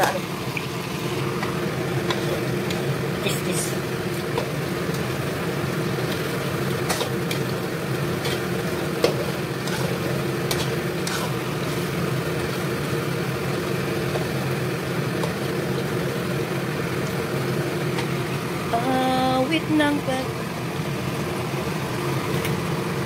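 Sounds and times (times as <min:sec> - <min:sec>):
potato slices sizzling in oil: 0:00.0 - 0:23.0
steady low hum: 0:00.0 - 0:23.0
metal spatula scraping a wok: 0:02.0 - 0:02.8, 0:06.8 - 0:07.5, 0:08.1 - 0:12.0.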